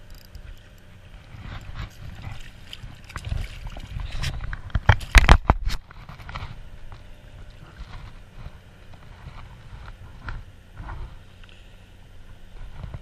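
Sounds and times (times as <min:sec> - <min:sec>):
wind rumble on microphone: 0:00.0 - 0:11.4, 0:12.1 - 0:13.0
fish splashing in water: 0:01.1 - 0:05.5.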